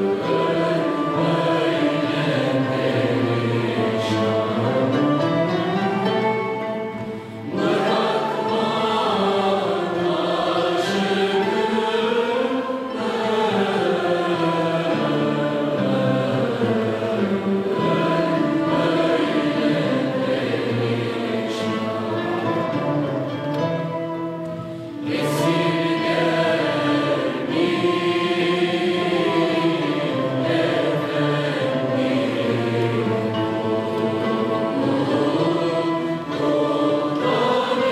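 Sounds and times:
flute: 0:00.0 - 0:14.6, 0:15.2 - 0:27.7, 0:29.1 - 0:37.9
bowed strings: 0:00.0 - 0:37.9
mixed choir singing: 0:00.0 - 0:37.9
plucked lutes: 0:12.9 - 0:28.2.

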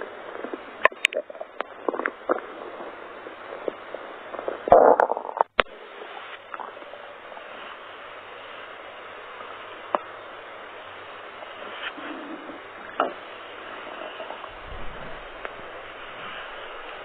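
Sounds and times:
stomach growling: 0:00.0 - 0:05.7, 0:11.9 - 0:13.2, 0:13.8 - 0:17.0
faint steady hiss: 0:00.0 - 0:17.0.

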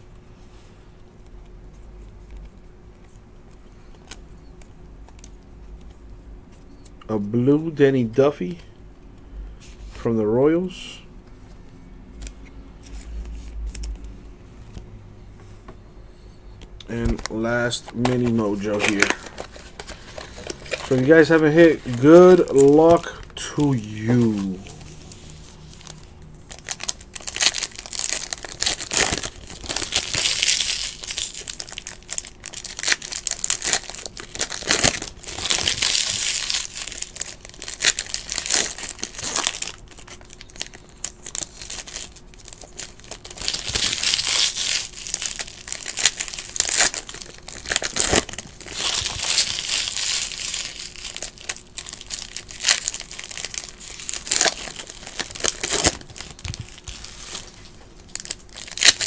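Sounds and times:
foil wrappers crinkling: 0:17.1 - 0:59.0.

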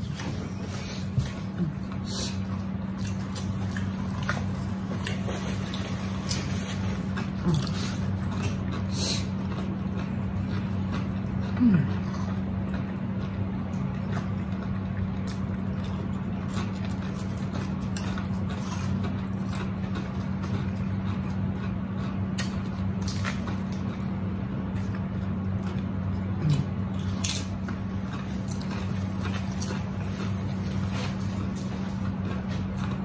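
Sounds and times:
chewing and crunching chips: 0:00.0 - 0:33.0
steady low hum: 0:00.0 - 0:33.0
wet mouth sounds: 0:26.3 - 0:26.8.

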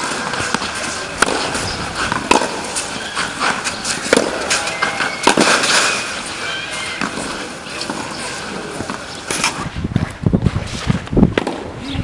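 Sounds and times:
tennis ball struck by rackets: 0:00.0 - 0:05.9, 0:10.9 - 0:11.7.

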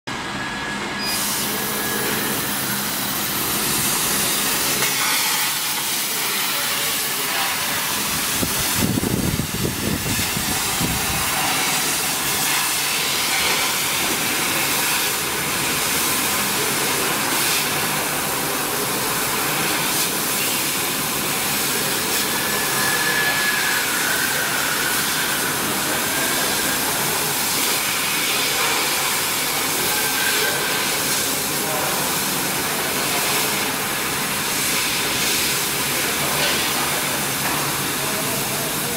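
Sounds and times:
laser cutter hissing: 0:01.0 - 0:38.9.

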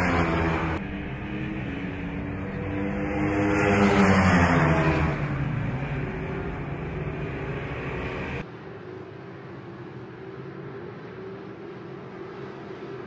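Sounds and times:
motorbikes racing past: 0:00.0 - 0:08.4.

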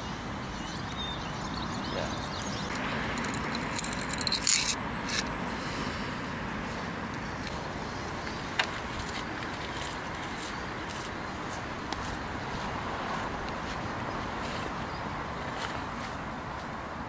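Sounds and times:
steady background hiss: 0:00.0 - 0:17.0
metal keys jangling: 0:03.1 - 0:05.3.

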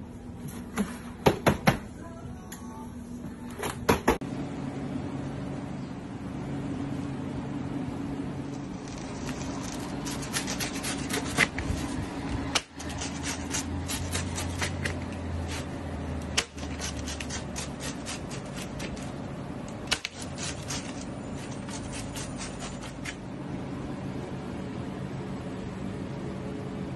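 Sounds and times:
low kitchen hum: 0:00.0 - 0:26.9
knife crunching through pizza crust: 0:08.6 - 0:19.1, 0:19.9 - 0:23.2.

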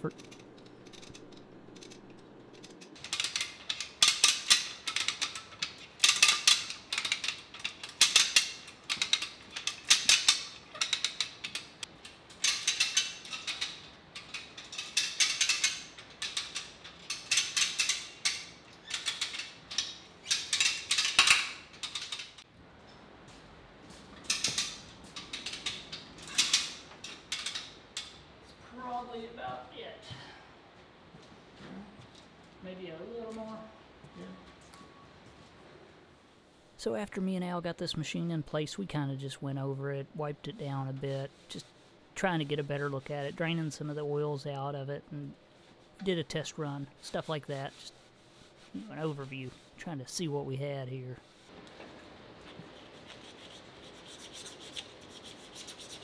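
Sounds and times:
ratchet winch clicking: 0:00.0 - 0:22.4.

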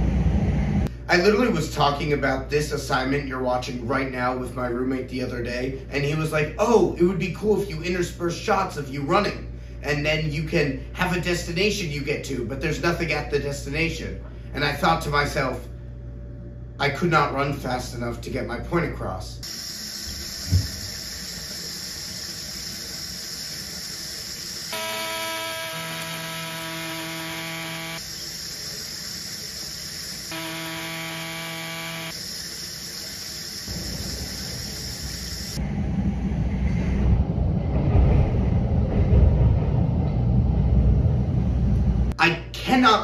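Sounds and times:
subway train rumbling: 0:00.0 - 0:01.6, 0:33.7 - 0:42.2
faucet running: 0:19.4 - 0:27.3, 0:27.9 - 0:30.8, 0:32.1 - 0:35.6
coffee grinder whining: 0:19.4 - 0:35.6.

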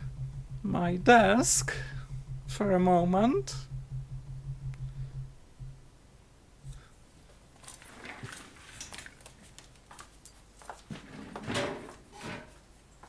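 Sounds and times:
objects handled clicks and rustles: 0:07.6 - 0:13.0.

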